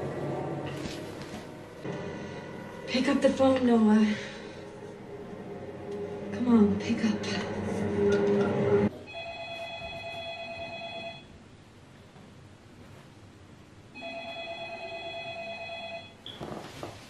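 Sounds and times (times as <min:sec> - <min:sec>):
telephone ringing: 0:09.0 - 0:11.3, 0:14.0 - 0:16.2.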